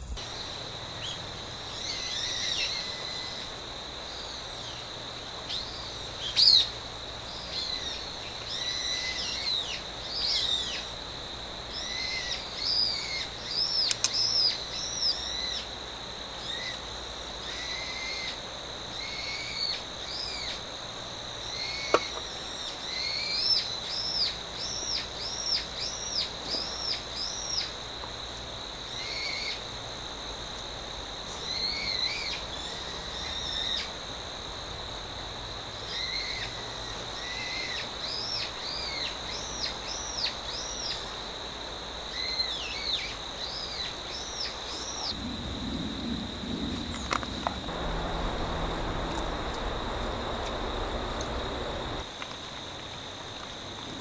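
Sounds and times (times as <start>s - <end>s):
insect trill: 0.0s - 54.0s
sharp click: 13.8s - 14.2s.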